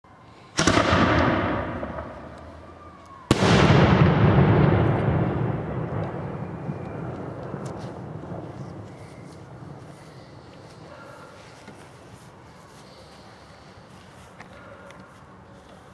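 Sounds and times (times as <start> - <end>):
fireworks bangs with rolling echo: 0.5 - 10.9.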